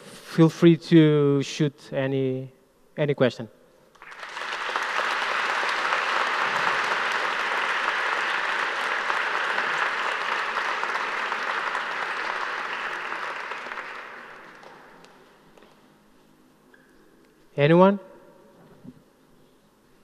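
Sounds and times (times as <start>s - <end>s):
audience applauding: 4.0s - 15.4s.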